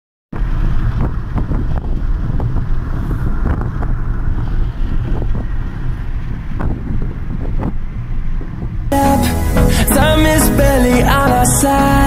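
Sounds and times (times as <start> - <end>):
wind buffeting microphone: 0.3 - 9.0
car road rumble: 0.3 - 12.0.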